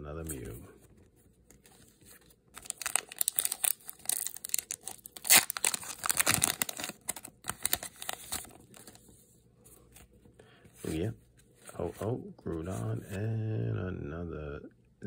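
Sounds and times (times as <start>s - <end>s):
foil wrapper tearing open: 2.6s - 9.0s.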